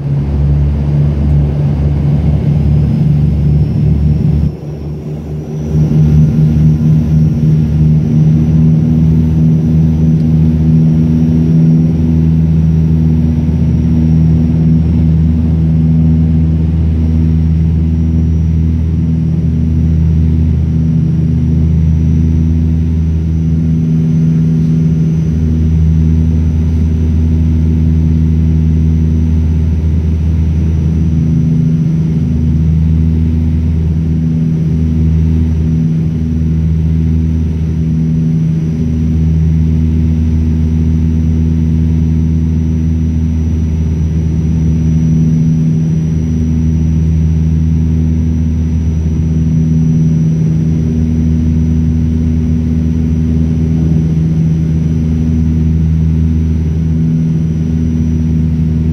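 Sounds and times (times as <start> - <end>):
turboprop cabin drone: 0.0 - 58.9.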